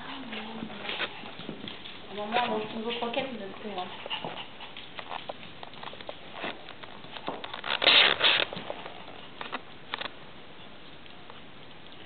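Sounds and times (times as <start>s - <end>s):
puppy claws tapping on hard floor: 0.2s - 10.2s
rustling burst: 6.3s - 10.0s.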